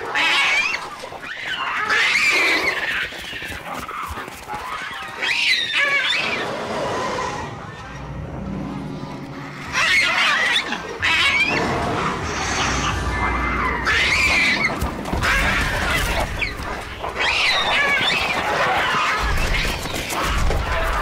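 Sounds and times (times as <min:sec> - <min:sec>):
low rumble: 0:07.0 - 0:10.2, 0:10.8 - 0:17.1
shrill screeching creature calls: 0:09.4 - 0:21.0.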